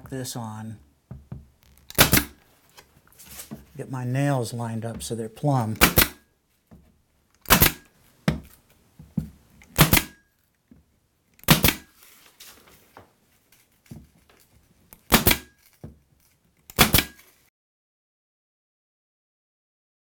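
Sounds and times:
nail gun firing: 0:01.9 - 0:02.4, 0:05.8 - 0:06.2, 0:07.4 - 0:07.9, 0:09.7 - 0:10.2, 0:11.4 - 0:11.9, 0:15.0 - 0:15.6, 0:16.7 - 0:17.3.

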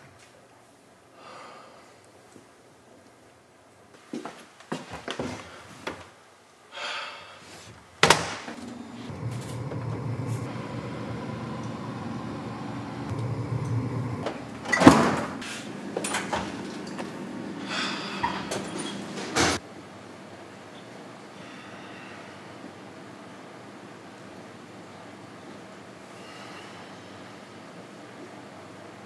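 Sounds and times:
oven door scraping open: 0:08.5 - 0:17.0
low hum: 0:08.6 - 0:19.3
cupboard doors opening and shutting: 0:14.2 - 0:16.6.

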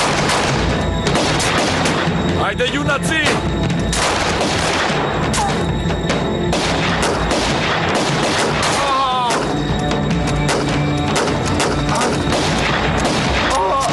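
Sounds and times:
rifle shots: 0:00.0 - 0:02.2, 0:03.3 - 0:05.6, 0:06.5 - 0:09.6, 0:10.4 - 0:13.9
dramatic background music: 0:00.0 - 0:13.9
person crying out: 0:08.8 - 0:09.4, 0:13.5 - 0:13.9.

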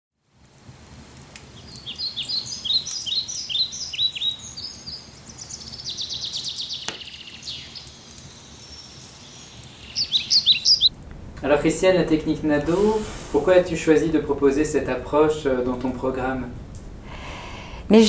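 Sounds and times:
faint steady background noise: 0:00.2 - 0:18.0
songbird chirping and trilling: 0:01.6 - 0:10.9.

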